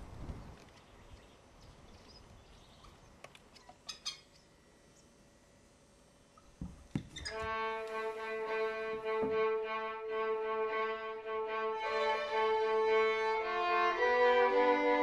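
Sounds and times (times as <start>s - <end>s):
faint outdoor ambience: 0.0s - 15.0s
high chirping: 0.8s - 5.2s.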